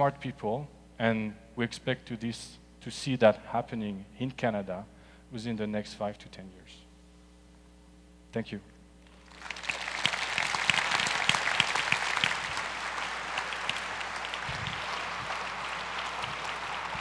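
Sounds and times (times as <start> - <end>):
audience applauding: 9.1 - 17.0.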